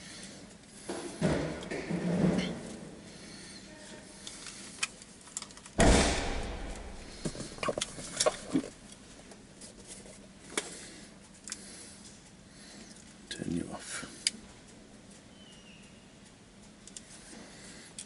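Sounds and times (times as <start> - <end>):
handling clicks and rustles: 3.8 - 5.8, 6.6 - 13.3.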